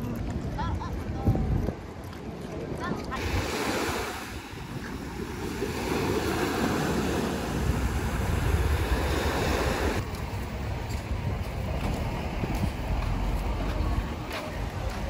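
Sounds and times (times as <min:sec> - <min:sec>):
wind buffeting microphone: 0:00.0 - 0:15.0
small waves breaking on beach: 0:02.2 - 0:10.1.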